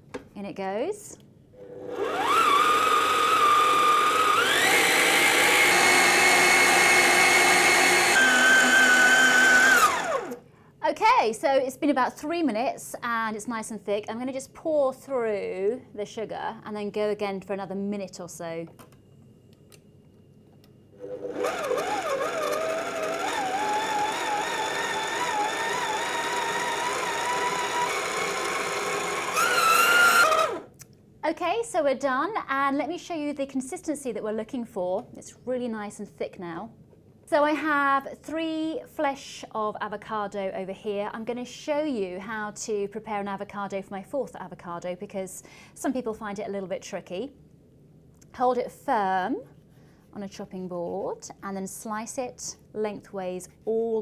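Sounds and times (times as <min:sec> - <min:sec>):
stand mixer motor whining: 0:01.6 - 0:10.4, 0:21.0 - 0:30.7.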